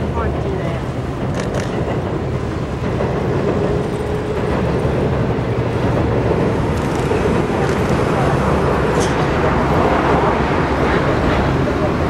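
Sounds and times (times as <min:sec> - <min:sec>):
train wheels rolling on bridge: 0:00.0 - 0:12.0.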